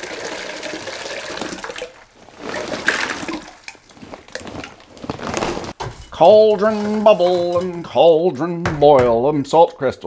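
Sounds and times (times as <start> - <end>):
salt crystals pouring into water: 0.0 - 5.1.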